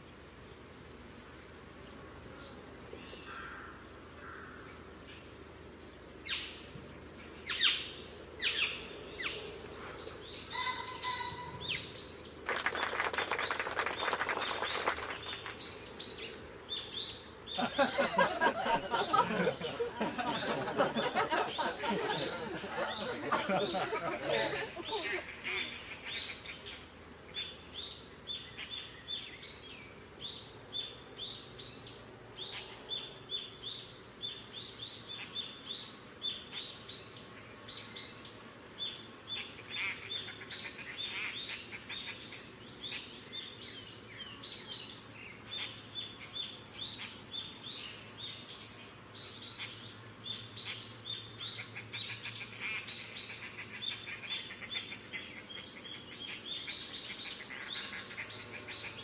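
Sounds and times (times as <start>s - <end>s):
small birds chirping: 0.0s - 59.0s.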